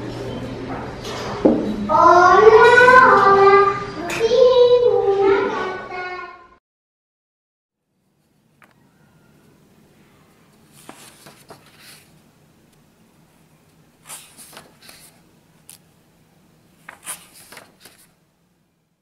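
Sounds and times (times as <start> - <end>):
faint steady hum: 7.8 - 19.0
paper pages rustling: 10.5 - 12.8, 14.0 - 15.9, 16.8 - 18.2.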